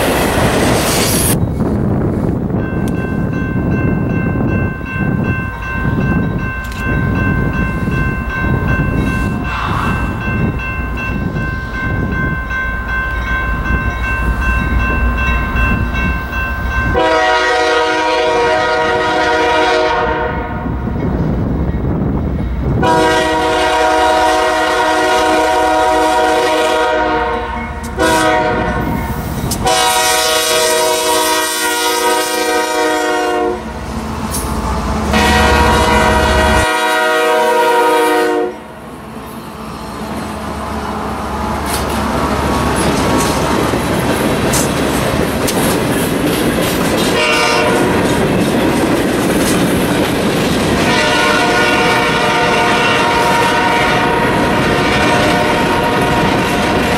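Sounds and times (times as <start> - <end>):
train wheels clattering on rails: 0.0 - 18.3, 41.4 - 56.9
train air horn blasts: 16.9 - 20.8, 22.8 - 33.7, 35.1 - 38.7, 47.1 - 48.2, 50.8 - 56.9.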